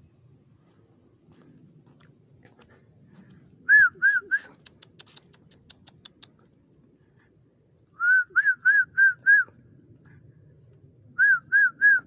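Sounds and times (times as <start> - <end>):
bird whistled call: 3.6 - 4.5, 8.0 - 9.6, 11.1 - 12.0
faint high ticks: 4.5 - 6.5.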